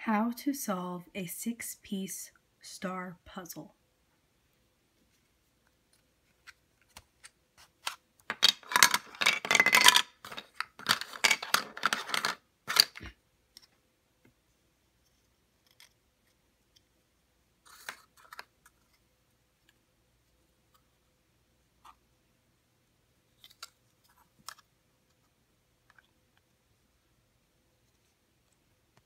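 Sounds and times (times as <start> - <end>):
plastic puzzle pieces clicking: 6.3 - 13.7, 23.4 - 24.7
pieces clattering on table: 8.3 - 13.1.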